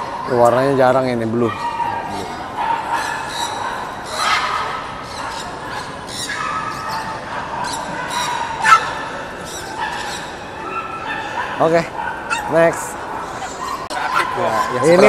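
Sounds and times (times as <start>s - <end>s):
dog yelp: 1.4s - 15.0s
dogs whining: 1.4s - 15.0s.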